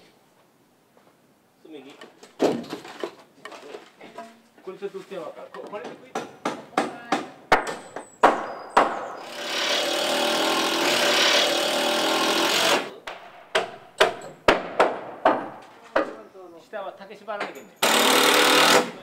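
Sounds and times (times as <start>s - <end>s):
power tool running: 9.2s - 13.0s, 17.8s - 19.0s.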